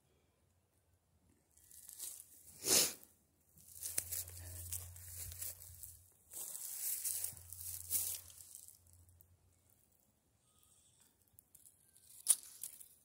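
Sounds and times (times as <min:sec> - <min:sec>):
rustling crackling noise: 0:01.6 - 0:02.6, 0:03.6 - 0:09.9
faint low hum: 0:03.4 - 0:12.0.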